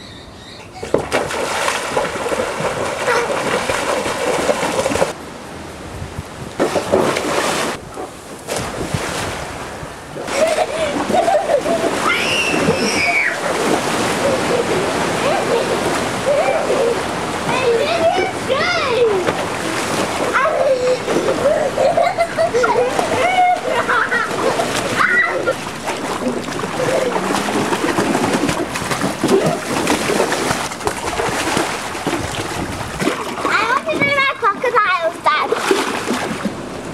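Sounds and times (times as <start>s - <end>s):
children splashing in water: 0.8s - 5.2s, 6.6s - 7.8s, 10.2s - 36.8s.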